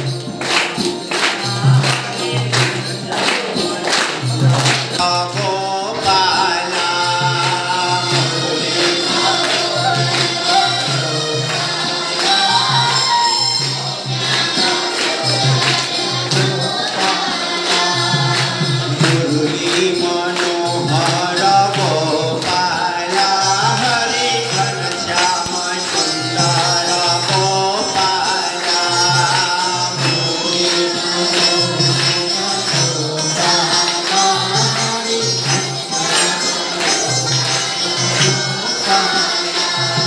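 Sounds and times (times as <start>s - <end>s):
group singing along: 0.0s - 40.0s
jingling metal percussion: 0.0s - 40.0s
rhythmic hand clapping: 0.0s - 40.0s
man singing into a microphone: 4.8s - 11.7s, 18.8s - 40.0s.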